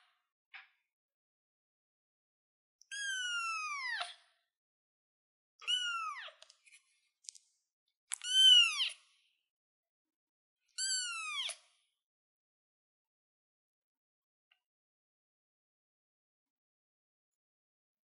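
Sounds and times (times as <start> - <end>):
kitten meowing: 2.9 - 4.0, 5.6 - 6.3, 8.1 - 9.0, 10.8 - 11.6.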